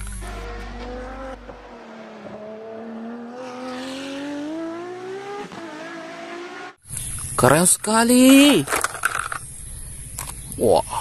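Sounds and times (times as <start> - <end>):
racing car engine accelerating: 0.0 - 6.8.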